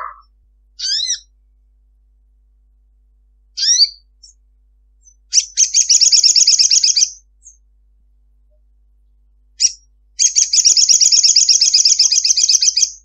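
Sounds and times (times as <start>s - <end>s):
bird calling and trilling: 0.0s - 1.3s, 3.6s - 4.4s, 5.0s - 7.6s, 9.6s - 13.0s.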